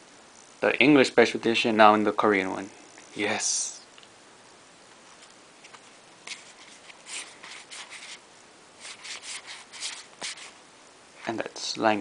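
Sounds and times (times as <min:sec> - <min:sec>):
cards sliding and rustling: 0:05.1 - 0:08.2, 0:08.8 - 0:10.6.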